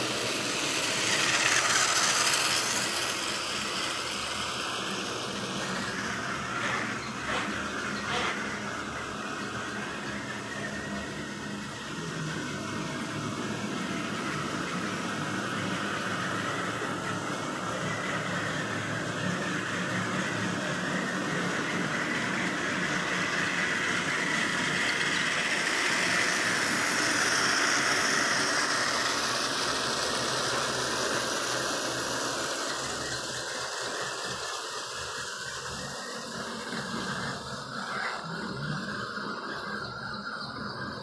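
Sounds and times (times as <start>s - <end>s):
small electric motors whirring: 0.0s - 41.0s
faint wheel squeal: 5.6s - 11.8s.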